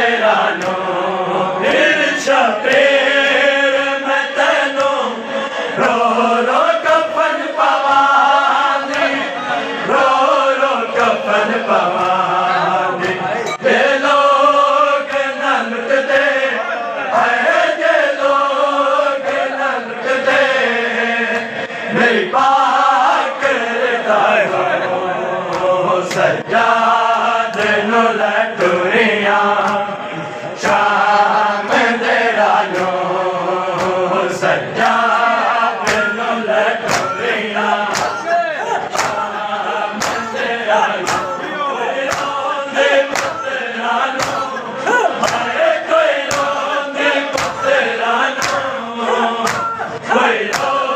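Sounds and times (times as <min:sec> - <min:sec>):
men chanting in unison: 0:00.0 - 0:50.9
hand slaps on chest: 0:40.0 - 0:40.3, 0:42.1 - 0:42.4, 0:43.1 - 0:43.4, 0:47.3 - 0:47.6, 0:48.4 - 0:48.6, 0:49.4 - 0:49.8, 0:50.5 - 0:50.7.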